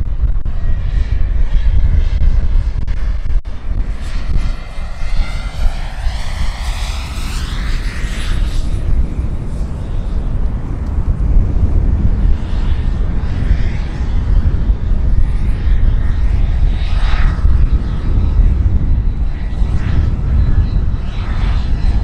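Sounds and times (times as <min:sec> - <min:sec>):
low rumble of rotor and wind: 0:00.0 - 0:22.0
model turbine whining: 0:00.0 - 0:22.0.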